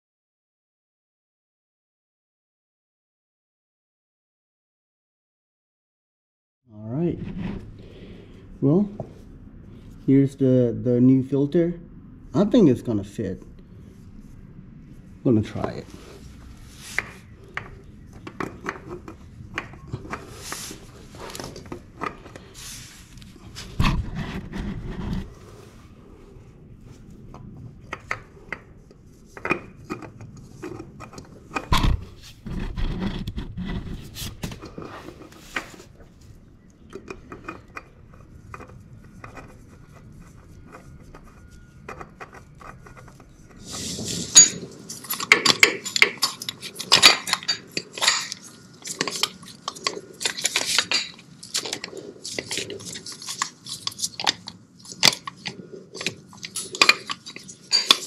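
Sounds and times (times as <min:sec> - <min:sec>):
metallic scrapes: 0:07.1 - 0:08.4, 0:13.8 - 0:27.1, 0:37.4 - 0:58.0
metal tools clinking: 0:43.7 - 0:58.0.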